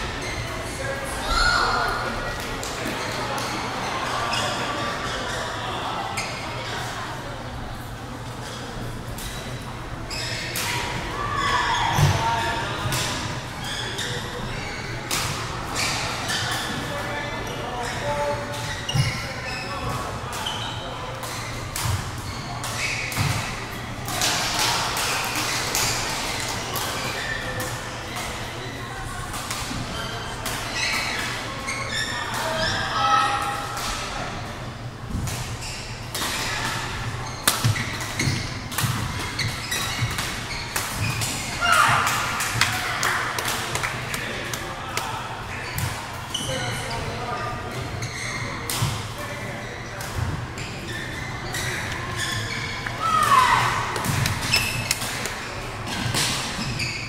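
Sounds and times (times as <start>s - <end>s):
background chatter of voices: 0.0s - 57.0s
sneaker squeaks on court floor: 9.4s - 10.6s, 13.6s - 23.6s, 30.0s - 32.9s, 35.4s - 42.0s, 45.5s - 57.0s.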